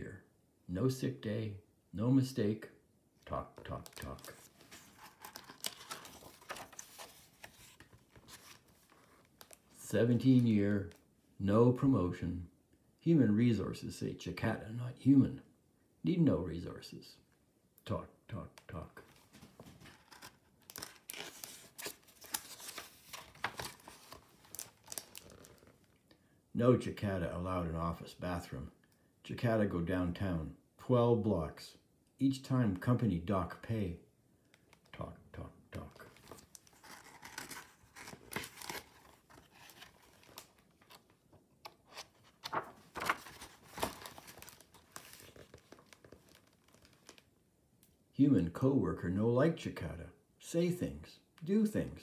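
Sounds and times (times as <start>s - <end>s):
book page turning: 3.6s - 11.0s, 19.0s - 26.0s, 36.0s - 47.3s.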